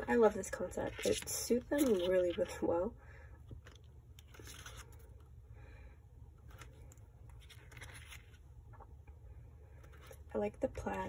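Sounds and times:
paper pages rustling and flicking: 3.7 - 5.1, 6.4 - 8.4.

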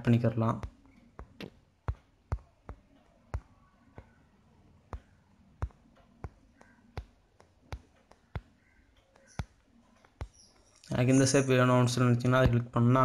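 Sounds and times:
sharp clicks: 0.5 - 11.4.

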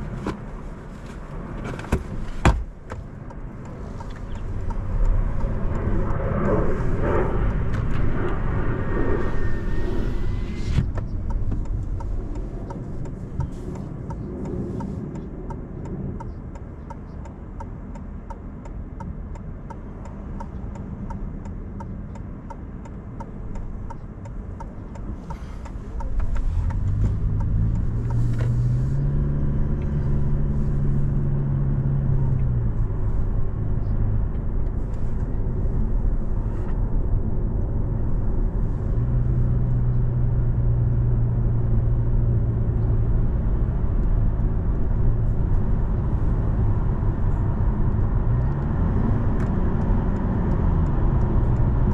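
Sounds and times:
car engine and road noise: 0.0 - 51.9.

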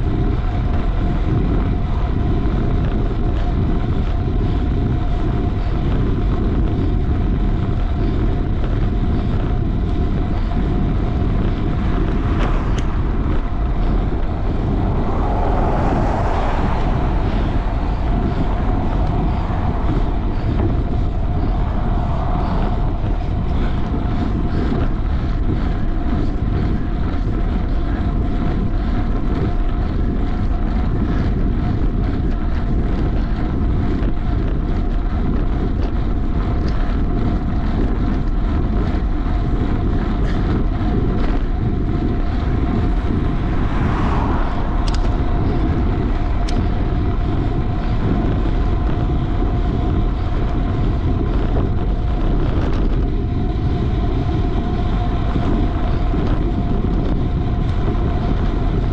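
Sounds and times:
bike riding noise: 0.0 - 58.9
wind buffeting microphone: 0.0 - 58.9
high hum: 9.1 - 31.6, 39.1 - 58.8.

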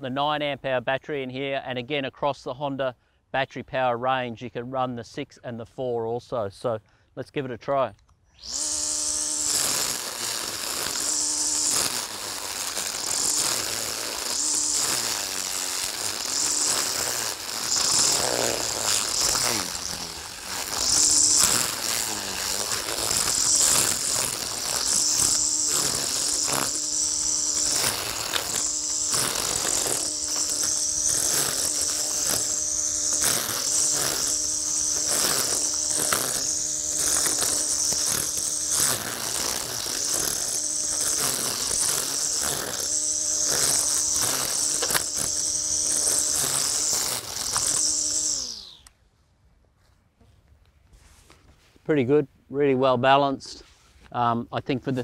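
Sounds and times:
brush cutter whining: 8.2 - 49.0
line crackling through dry grass: 9.5 - 48.8.

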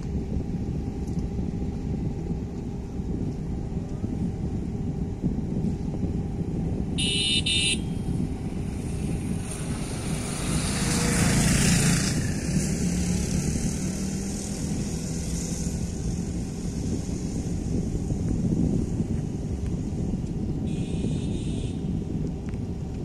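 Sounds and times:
wind rumbling on microphone: 0.0 - 23.0
passing engine: 6.4 - 22.0.

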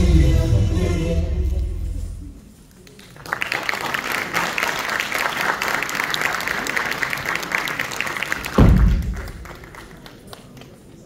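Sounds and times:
audience applauding: 2.8 - 11.0
low thump: 8.6 - 9.2.

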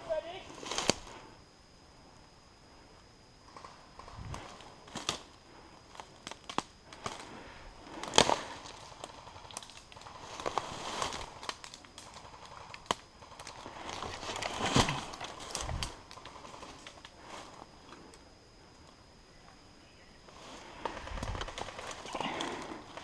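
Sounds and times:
twigs cracking underfoot: 0.6 - 1.1, 3.5 - 7.3, 7.9 - 18.2, 20.3 - 23.0.

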